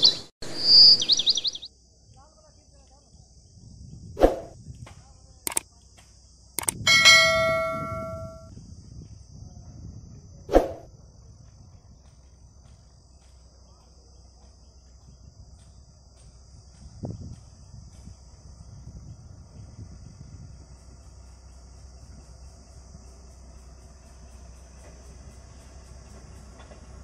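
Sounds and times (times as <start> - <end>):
sharp metallic knocks: 6.6 - 8.5.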